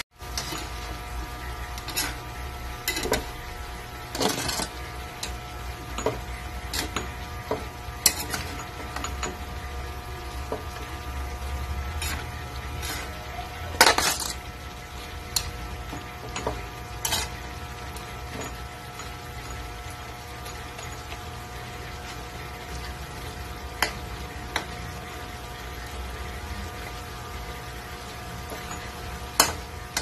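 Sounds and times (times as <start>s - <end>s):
metal spatula scraping a wok: 0.2s - 0.9s, 1.7s - 3.4s, 4.1s - 4.9s, 8.0s - 9.2s, 11.8s - 14.5s, 17.0s - 17.5s.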